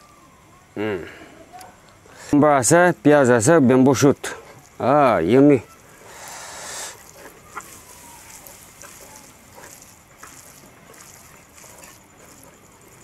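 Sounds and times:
fingers mixing food in bowl: 6.9s - 13.0s.

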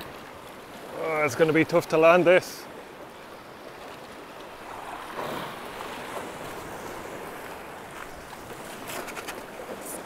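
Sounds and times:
surf breaking on rocks: 4.5s - 9.8s.

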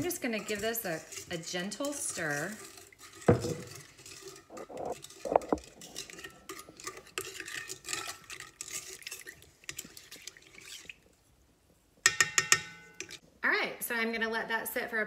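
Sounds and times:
spatula scraping metal bowl: 0.0s - 11.0s.

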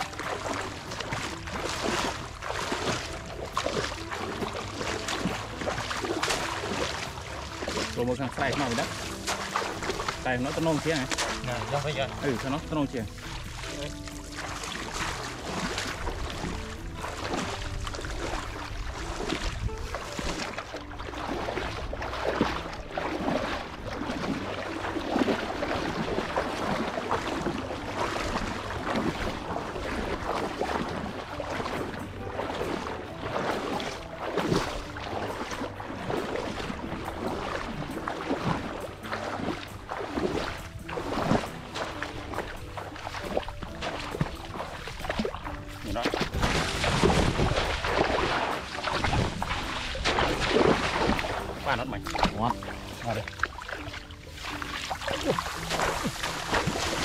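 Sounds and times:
muddy water splashing: 0.0s - 57.0s
wind on microphone: 15.1s - 27.9s, 39.8s - 52.9s.

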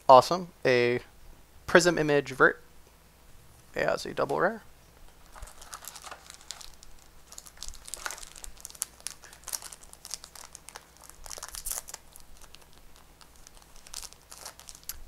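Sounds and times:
foil wrapper crinkling: 5.1s - 15.0s.

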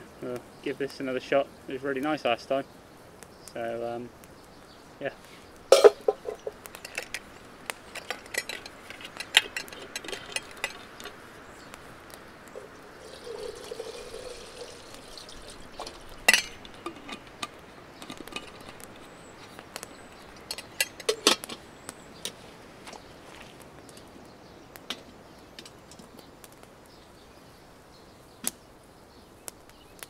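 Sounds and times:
flask and pot clinking: 5.7s - 7.3s, 7.9s - 11.2s, 12.6s - 18.8s
water pouring into metal kettle: 12.6s - 16.8s.

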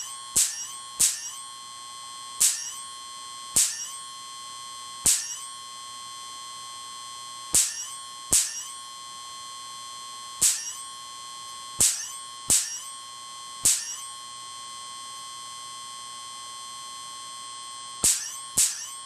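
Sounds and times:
electric sparks cracking: 0.0s - 1.3s, 2.4s - 2.8s, 3.6s - 3.9s, 5.0s - 5.4s, 7.6s - 8.6s, 10.4s - 10.8s, 11.8s - 12.8s, 13.6s - 14.0s, 18.0s - 18.9s
high-pitched whine: 0.0s - 19.0s.

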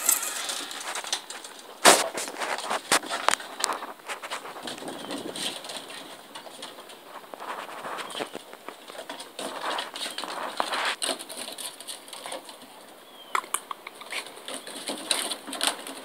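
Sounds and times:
puppy claws on wooden boards: 0.0s - 12.7s.

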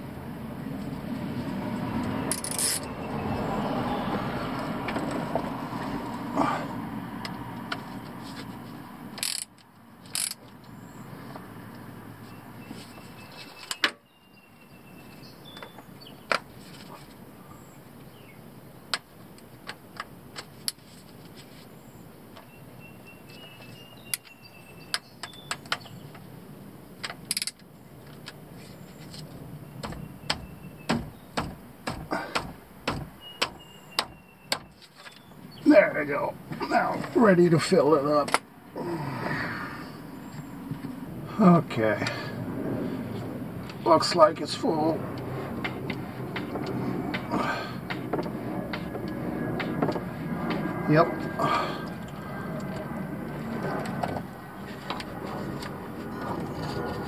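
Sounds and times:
hand tools clinking on metal: 2.3s - 2.9s
steady rushing noise: 39.2s - 57.0s.

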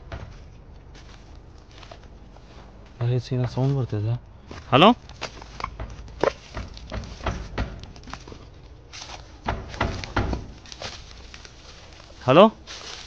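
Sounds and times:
footsteps crunching on dry leaves: 0.9s - 2.8s, 8.8s - 9.4s, 10.4s - 13.0s.

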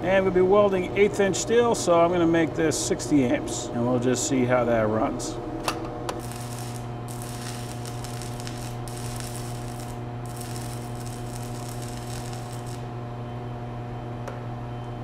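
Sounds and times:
low hum: 5.4s - 14.1s
welding arc hissing: 6.2s - 13.0s.

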